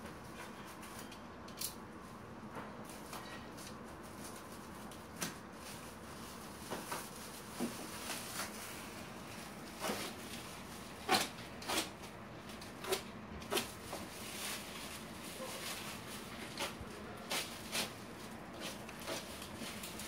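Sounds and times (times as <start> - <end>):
plastic wrap crinkling and tearing: 3.6 - 20.0.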